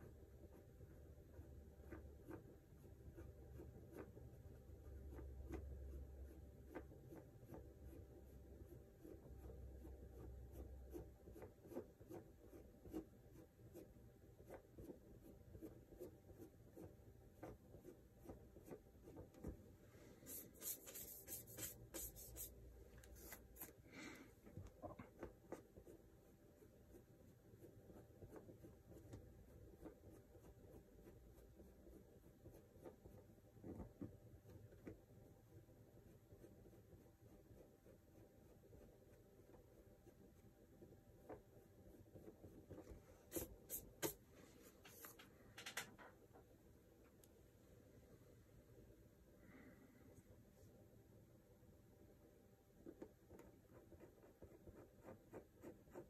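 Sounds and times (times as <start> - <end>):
drawing tool scratching surface: 1.2 - 19.6, 20.3 - 23.8.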